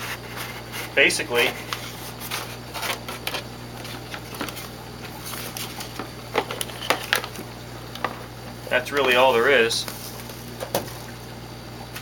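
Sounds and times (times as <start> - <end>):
cardboard rustling: 0.0 - 7.5.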